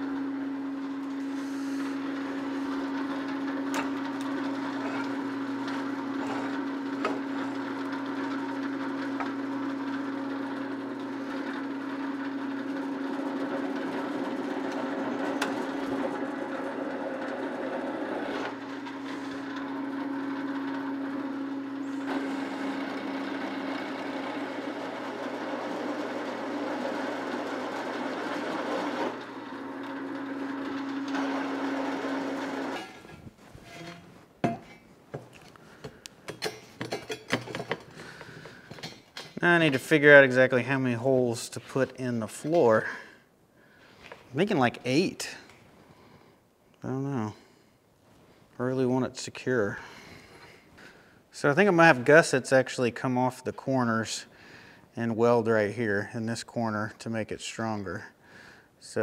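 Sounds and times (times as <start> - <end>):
drill press motor hum: 0.0 - 40.4
drill boring through steel: 1.1 - 33.0.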